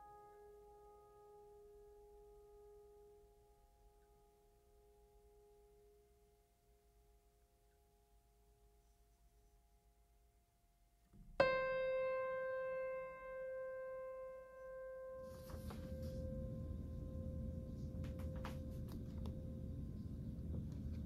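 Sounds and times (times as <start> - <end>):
piano-like note ringing: 11.2 - 21.0
low room rumble: 11.4 - 21.0
paper rustling: 15.3 - 16.2.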